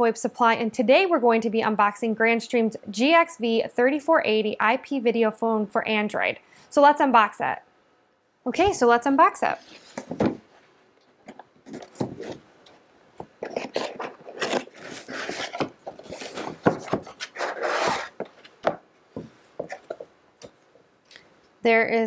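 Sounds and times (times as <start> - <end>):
cardboard scraping and rubbing: 11.3 - 12.5, 13.2 - 18.8.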